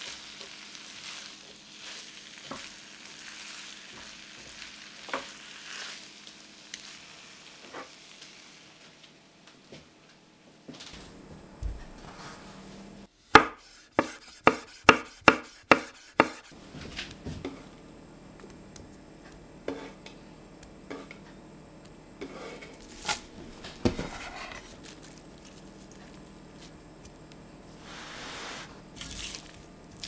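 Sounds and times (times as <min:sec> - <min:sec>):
knife chopping on wooden board: 0:13.3 - 0:16.6.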